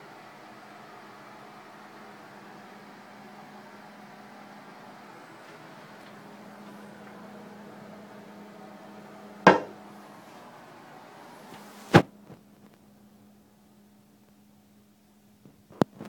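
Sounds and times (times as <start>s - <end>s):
plastic toilet lid clacking: 9.5s - 9.7s.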